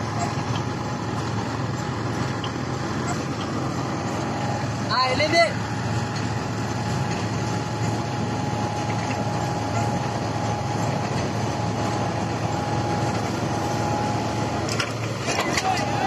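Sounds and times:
combine harvester engine running: 0.0 - 16.0
thin steady whine: 0.0 - 16.0.

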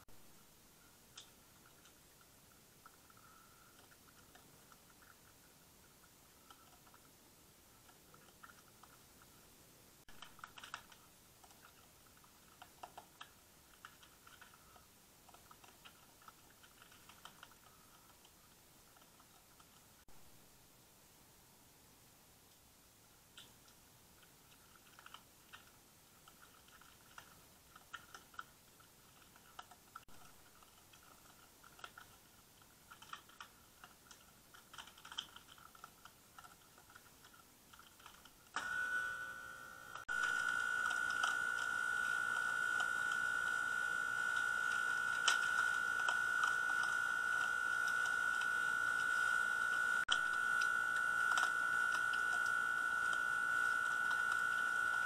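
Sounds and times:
animal chewing crunches: 10.1 - 20.0, 24.2 - 39.0, 39.9 - 55.0
high-pitched whine: 38.6 - 55.0.

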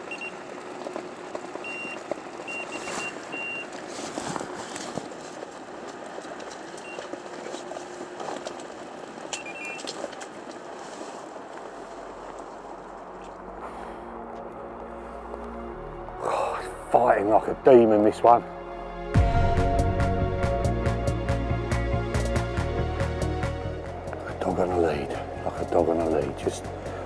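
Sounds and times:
steady rain: 0.0 - 17.4.

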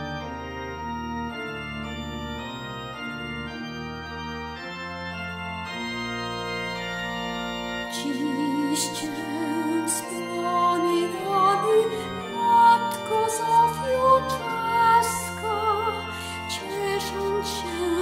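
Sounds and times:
organ chords: 0.0 - 18.0
high wavering melody: 7.9 - 18.0.

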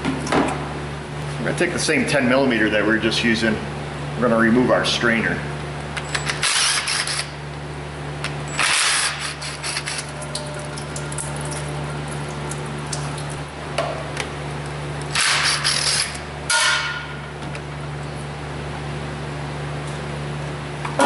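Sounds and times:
low steady hum: 0.0 - 21.0
power driver spinning bolts: 6.0 - 7.3.

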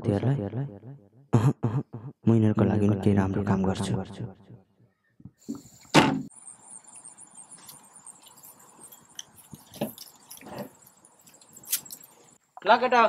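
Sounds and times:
shrill insect chirping: 5.5 - 12.5.

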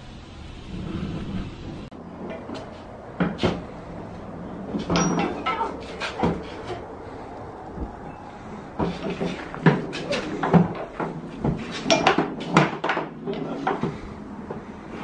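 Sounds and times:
car wash spray rushing: 0.0 - 1.9.

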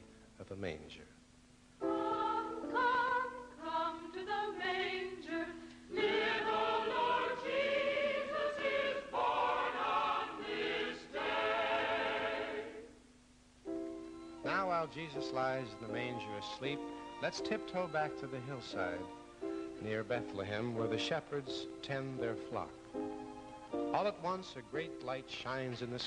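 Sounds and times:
choir singing in harmony: 1.8 - 13.0.

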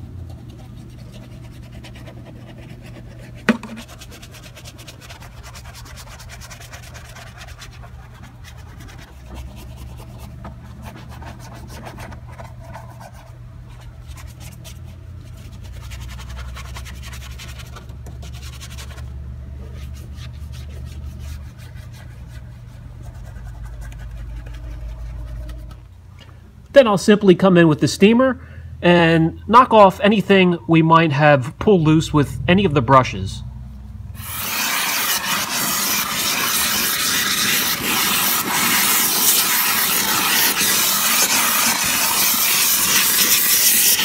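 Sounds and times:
steady low hum: 0.0 - 44.0
brush bristles scrubbing: 0.3 - 19.1, 19.7 - 25.8, 34.2 - 44.0.

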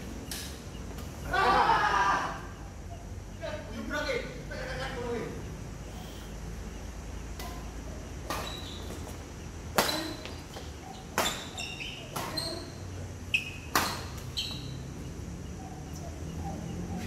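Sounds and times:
rackets hitting shuttlecock: 7.3 - 14.8
short high squeaks: 8.3 - 9.1, 9.8 - 14.8.

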